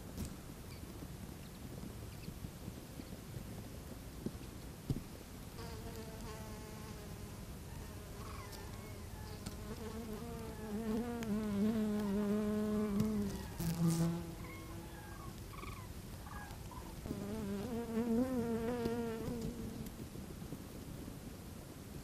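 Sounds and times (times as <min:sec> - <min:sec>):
low loud insect buzz: 0:05.6 - 0:15.8, 0:17.0 - 0:20.0.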